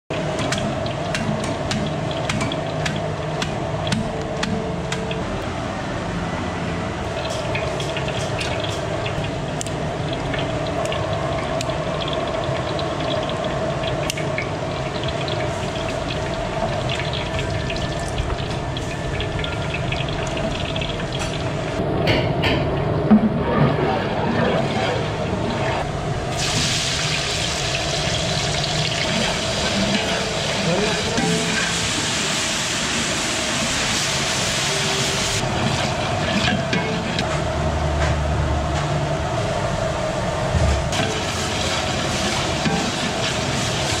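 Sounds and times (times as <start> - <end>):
oil sizzling with crackles: 7.0 - 21.8, 25.7 - 37.2, 40.9 - 44.0.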